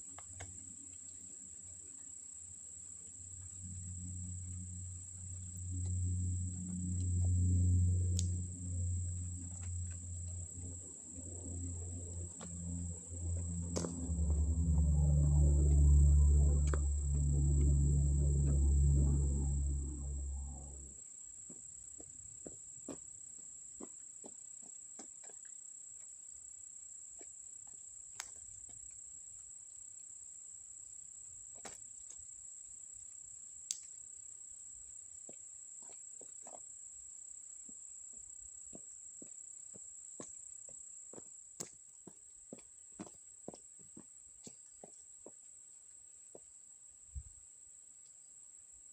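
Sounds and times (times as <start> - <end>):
insects chirring: 0.0 - 21.0
low rumble: 3.3 - 21.0.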